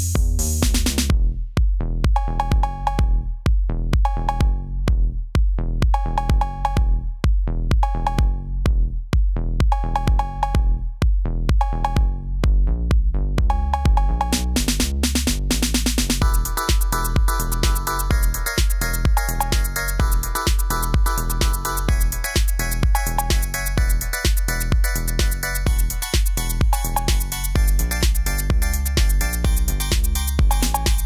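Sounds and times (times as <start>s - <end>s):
drum machine beat: 0.0s - 31.0s
steady bass: 0.0s - 31.0s.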